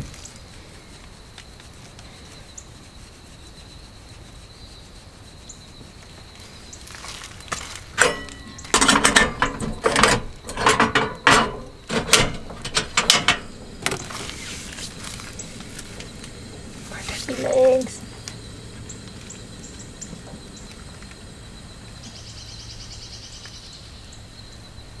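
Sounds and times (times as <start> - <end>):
things clattering on wooden counter: 7.5 - 14.4.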